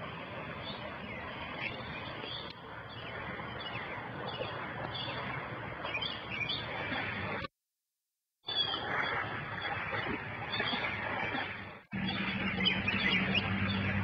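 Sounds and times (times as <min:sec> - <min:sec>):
birds chirping: 0:00.6 - 0:07.1, 0:12.0 - 0:14.0.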